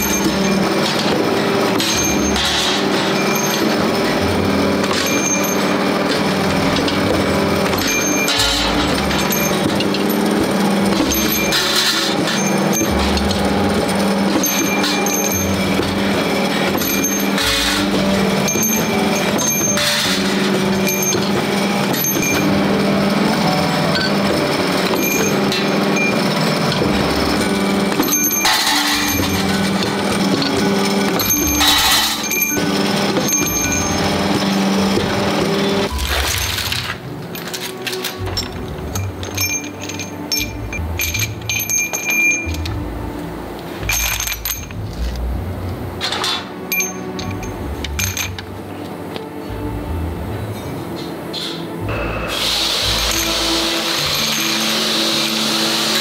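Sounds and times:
sharp metallic clanks: 0:00.0 - 0:42.9, 0:43.7 - 0:45.2, 0:46.0 - 0:48.6, 0:50.5 - 0:56.0
steel bars clinking: 0:00.0 - 0:45.3, 0:46.0 - 0:49.6, 0:50.5 - 0:56.0
power press humming: 0:00.0 - 0:56.0
hissing bursts: 0:52.2 - 0:56.0.

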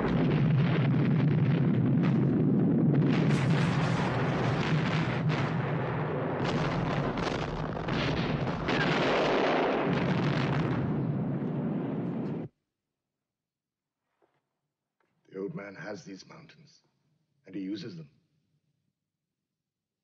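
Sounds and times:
fire crackling: 0:00.0 - 0:12.5
fuel tanks exploding: 0:00.0 - 0:12.5.

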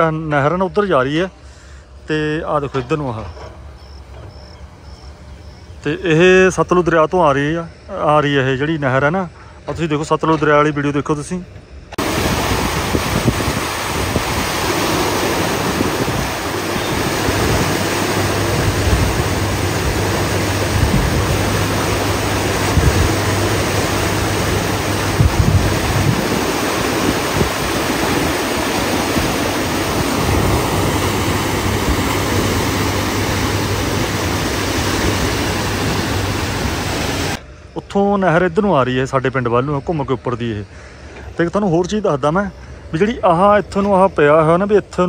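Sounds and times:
water rushing through bridge arches: 0:12.0 - 0:37.4
wind buffeting microphone: 0:12.0 - 0:37.4.

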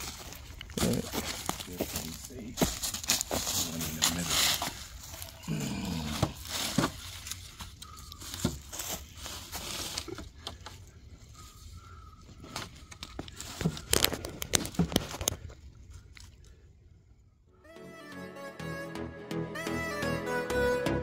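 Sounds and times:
dry leaves and mulch rustling: 0:00.0 - 0:16.6.

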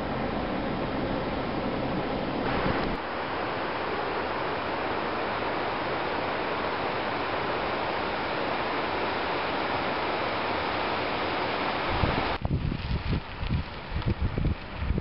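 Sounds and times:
mountain stream rushing: 0:00.0 - 0:12.5
wind buffeting microphone: 0:11.0 - 0:15.0.

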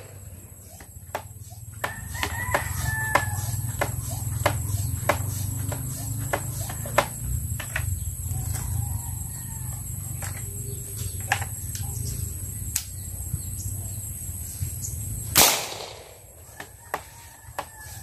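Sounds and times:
marble gun bang: 0:15.4 - 0:16.2.

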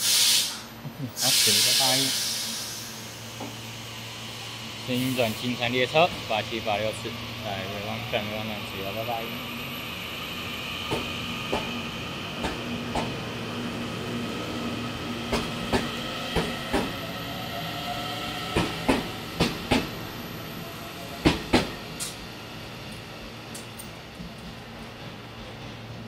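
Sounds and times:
electric train whine: 0:00.0 - 0:26.0
train wheels clicking over rail joint: 0:10.9 - 0:11.8, 0:12.4 - 0:13.1, 0:15.3 - 0:17.0, 0:18.5 - 0:19.9, 0:21.2 - 0:22.2.

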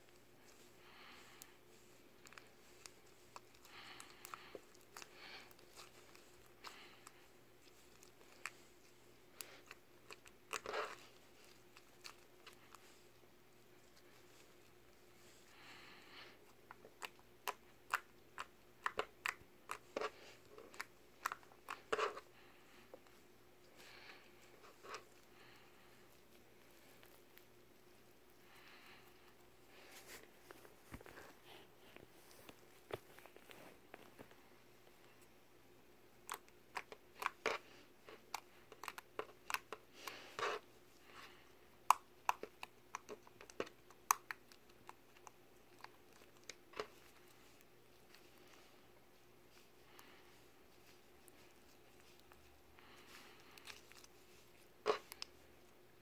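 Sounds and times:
slime squelch: 0:00.1 - 0:34.2, 0:36.0 - 0:56.0.

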